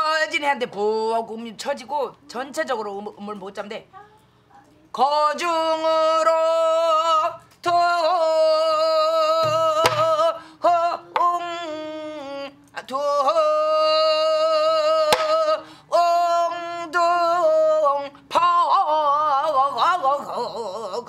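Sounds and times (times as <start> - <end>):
woman singing: 4.8 - 21.0
stick striking barrel drum: 9.4 - 10.2, 15.1 - 15.4.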